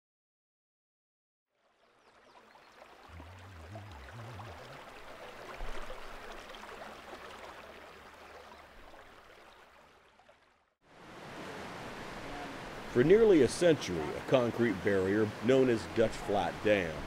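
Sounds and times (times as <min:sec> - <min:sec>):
creek babbling: 0:01.5 - 0:17.0
low bump: 0:03.1 - 0:06.0.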